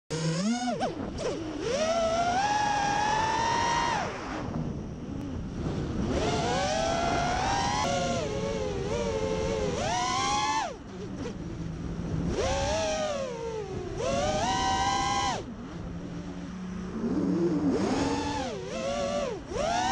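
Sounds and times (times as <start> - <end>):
quadcopter motors whining: 0.1 - 19.9.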